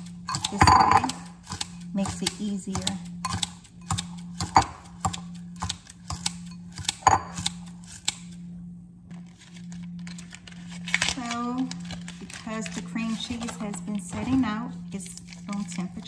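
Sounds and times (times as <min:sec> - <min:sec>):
scissors snipping leaves: 0:00.3 - 0:08.3.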